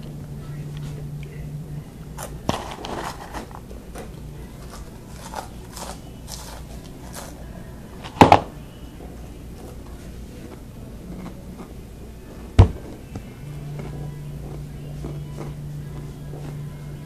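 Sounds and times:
crunching and chewing snacks: 2.2s - 7.5s.

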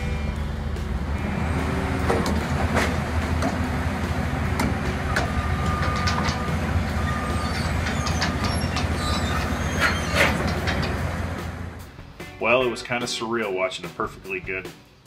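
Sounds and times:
diesel engine running: 0.0s - 12.1s
metallic clanks: 4.5s - 11.8s
thin squeal: 5.6s - 10.8s.

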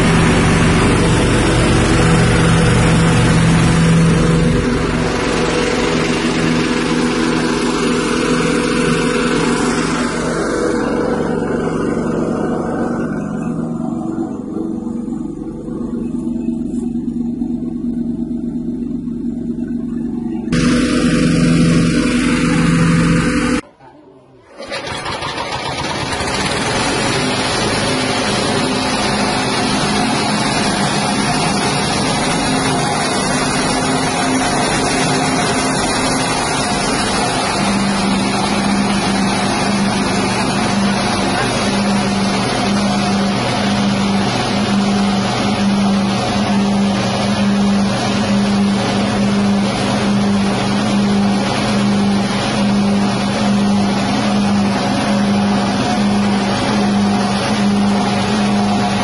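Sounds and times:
small petrol engine running: 0.0s - 23.6s, 24.4s - 59.0s
grinding machine rushing noise: 0.0s - 23.7s, 24.5s - 59.0s.

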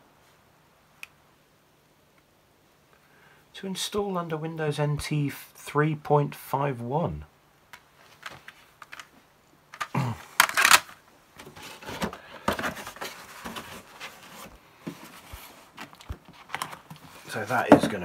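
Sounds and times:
paper rustling: 9.8s - 18.0s.

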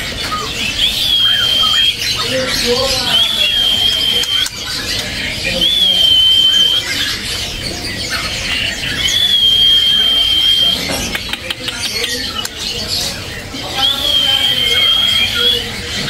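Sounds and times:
bird singing high whistles: 0.2s - 4.8s, 5.4s - 7.2s, 8.5s - 11.2s, 13.6s - 16.0s.

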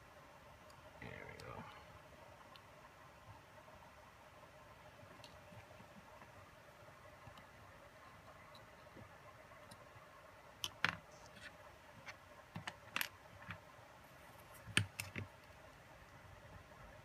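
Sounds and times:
small parts clicking and knocking: 10.6s - 13.6s.

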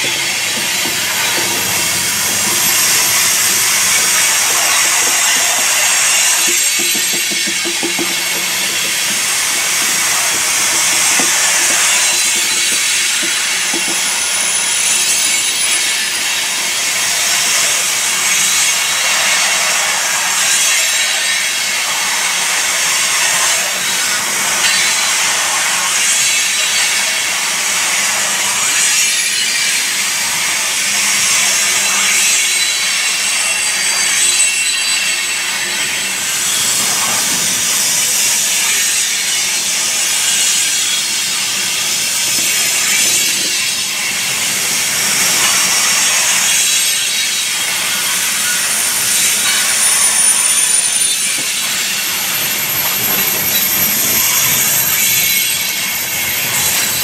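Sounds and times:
freight train wheels rushing: 0.0s - 17.8s, 35.2s - 57.0s.

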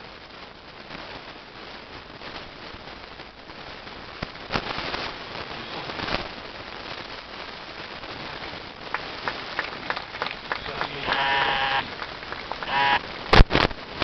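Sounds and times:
crowd applause: 8.8s - 13.1s.

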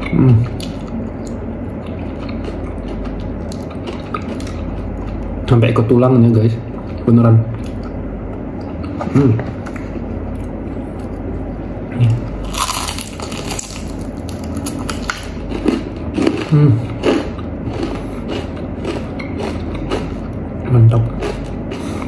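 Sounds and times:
chewing: 0.0s - 5.2s, 12.0s - 22.0s
crispy chicken crunching: 12.2s - 20.2s, 20.9s - 21.9s.

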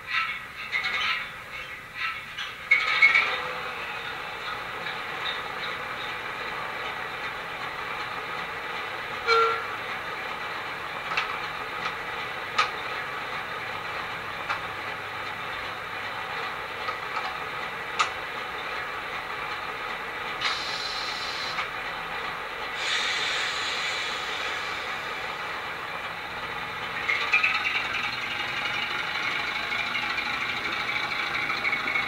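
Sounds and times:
diesel engine idling through speaker: 17.4s - 32.0s
hiss: 20.4s - 21.7s, 22.7s - 25.8s.

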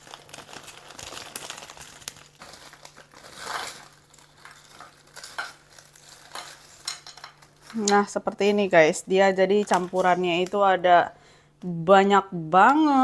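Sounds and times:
plastic bag crinkling: 0.0s - 8.8s, 9.6s - 10.6s.

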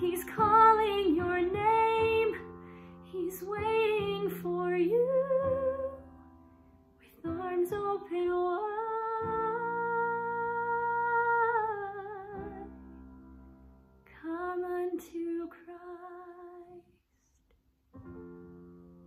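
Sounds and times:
woman singing: 0.0s - 6.1s, 7.0s - 12.8s, 14.1s - 17.0s.

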